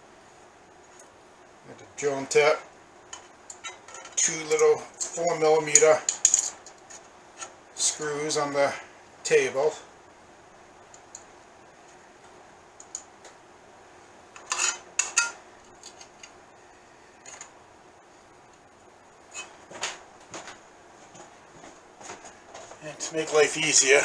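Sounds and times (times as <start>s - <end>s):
faint steady hum: 0.0s - 24.0s
metal tools clinking on steel table: 3.1s - 5.2s, 5.8s - 6.8s, 14.4s - 16.1s.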